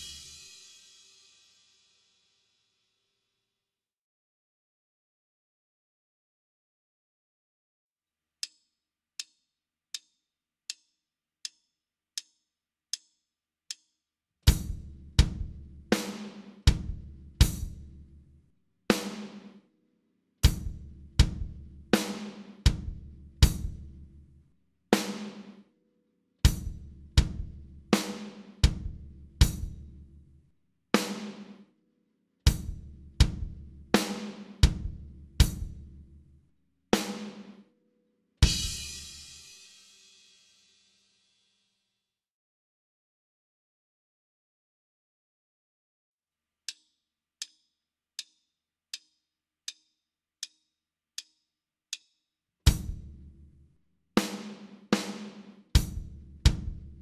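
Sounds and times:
light count-in clicks: 0:08.4 - 0:14.0, 0:46.6 - 0:52.3
bass drum: 0:14.5 - 0:16.0, 0:16.6 - 0:18.2, 0:20.4 - 0:24.1, 0:26.5 - 0:27.9, 0:28.6 - 0:30.1, 0:32.5 - 0:36.0, 0:38.4 - 0:39.1, 0:52.7 - 0:53.5, 0:55.7 - 0:57.0.

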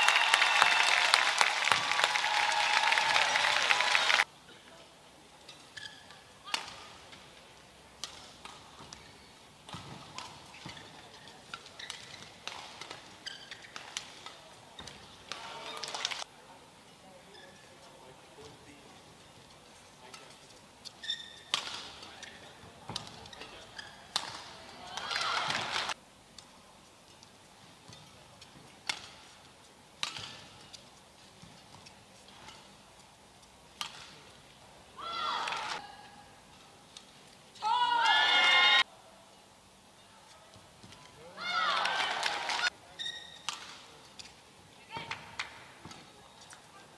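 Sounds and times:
court shoes squeaking: 0:05.4 - 0:16.2, 0:17.0 - 0:25.9, 0:27.0 - 0:34.6, 0:42.8 - 0:46.9
rackets hitting shuttlecock: 0:05.5 - 0:07.3, 0:07.9 - 0:16.2, 0:21.1 - 0:26.5, 0:27.8 - 0:29.4, 0:30.0 - 0:32.8, 0:33.7 - 0:34.4, 0:43.2 - 0:44.4.

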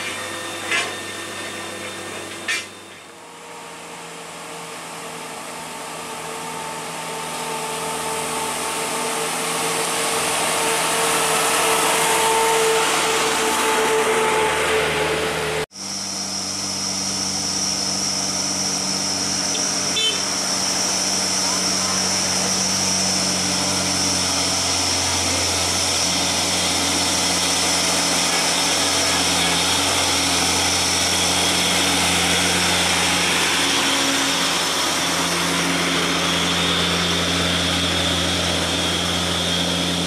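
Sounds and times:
diesel truck engines labouring: 0:00.0 - 0:40.0
steady high whine: 0:07.3 - 0:40.0.

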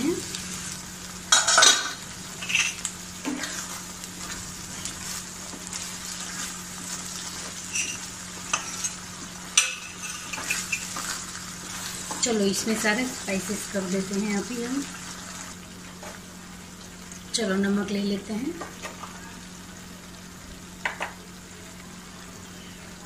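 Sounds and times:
gravy sizzling in oil: 0:00.0 - 0:23.0
spatula scraping pan: 0:01.3 - 0:12.9.

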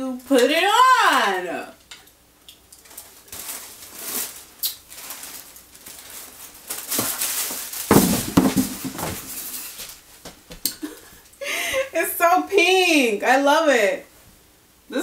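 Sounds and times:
tissue paper rustling: 0:02.8 - 0:10.2
bathrobe rustling: 0:02.8 - 0:11.2
crackling and knocking: 0:06.8 - 0:10.7.

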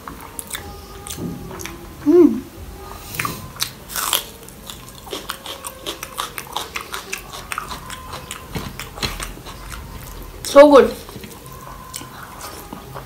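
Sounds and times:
chewing crunchy crisps: 0:03.2 - 0:13.0.

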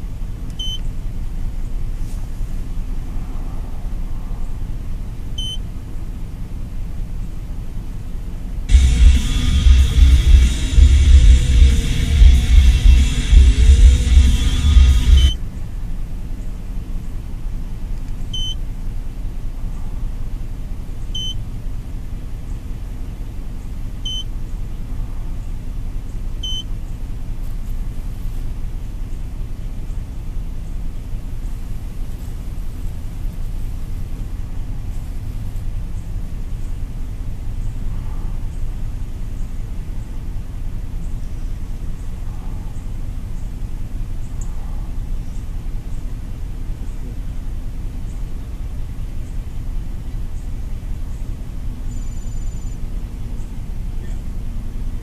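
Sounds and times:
engine idling: 0:00.0 - 0:55.0
short high beeps: 0:13.1 - 0:15.4.

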